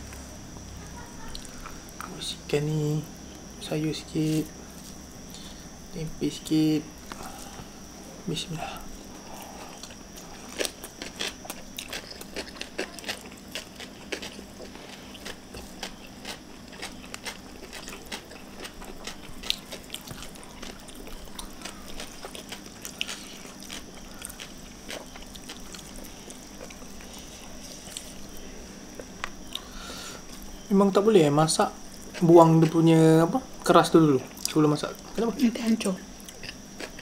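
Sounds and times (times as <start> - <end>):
chewing crispy food: 8.4 - 30.6, 31.5 - 37.0.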